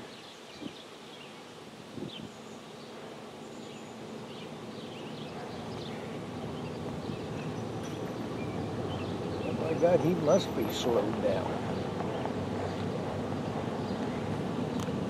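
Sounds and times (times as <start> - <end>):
bird or insect chirps: 0.0 - 10.4.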